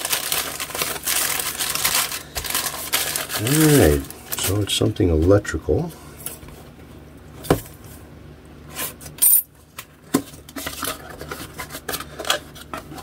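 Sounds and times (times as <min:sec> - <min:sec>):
cardboard ripping: 0:00.0 - 0:04.1
cardboard rustling and scraping: 0:10.2 - 0:13.0.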